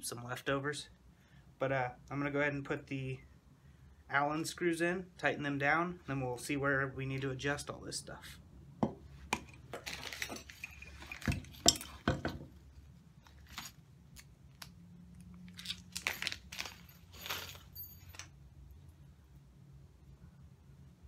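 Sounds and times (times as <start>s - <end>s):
metal screws clinking: 9.4s - 12.4s, 13.2s - 14.3s, 15.6s - 18.4s
plastic bag crinkling: 15.4s - 18.2s.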